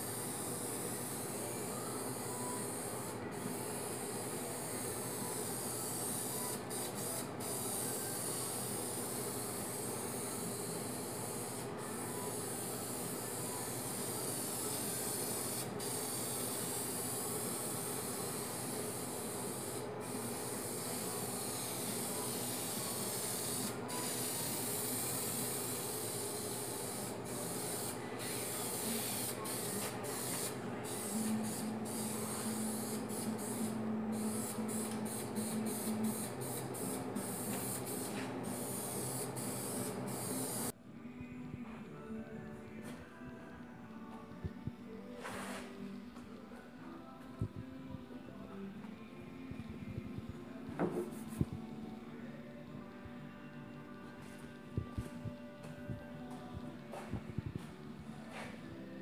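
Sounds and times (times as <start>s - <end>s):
spray paint can hissing: 13.8s - 40.7s.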